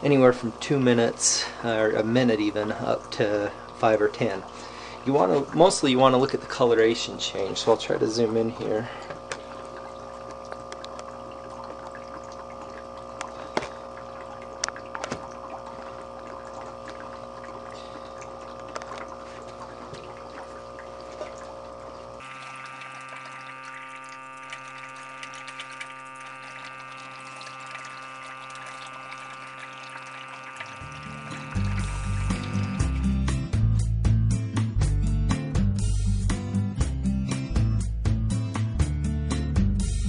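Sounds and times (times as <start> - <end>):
air pump humming: 0.0 - 34.2
air bubbling through liquid: 8.6 - 33.3.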